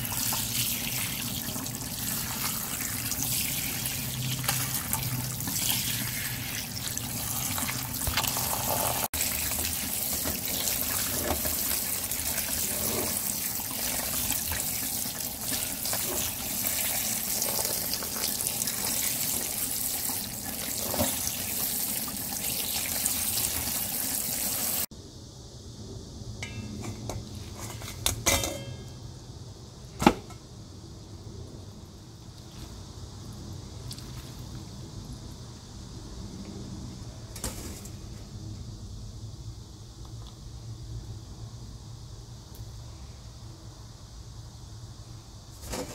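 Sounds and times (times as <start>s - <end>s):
hands rinsing noodles: 0.0s - 24.8s
tap water running: 0.0s - 24.9s
kitchenware clattering: 27.6s - 28.9s.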